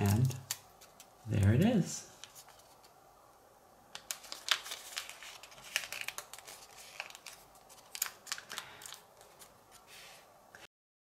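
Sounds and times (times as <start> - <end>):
paper rustling and crackling: 0.0 - 1.2, 2.1 - 3.0, 3.9 - 10.3.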